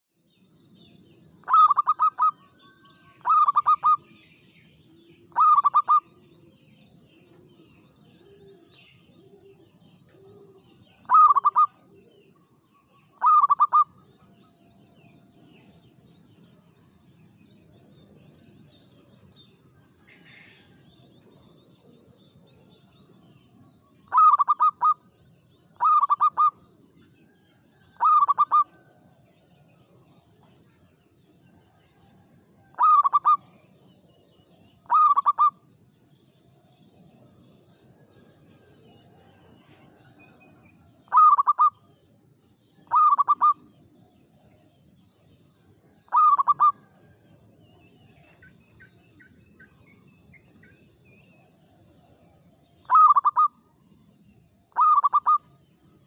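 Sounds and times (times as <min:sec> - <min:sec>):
faint bird chirps: 0:00.4 - 0:56.0
dove trilled cooing: 0:01.3 - 0:02.5, 0:03.1 - 0:04.2, 0:04.8 - 0:06.3, 0:07.0 - 0:12.4, 0:13.1 - 0:14.1, 0:24.0 - 0:25.1, 0:25.7 - 0:26.7, 0:27.8 - 0:29.0, 0:32.7 - 0:33.6, 0:34.8 - 0:35.6, 0:41.1 - 0:41.9, 0:42.8 - 0:43.7, 0:46.1 - 0:47.2, 0:51.5 - 0:53.6, 0:54.7 - 0:55.5.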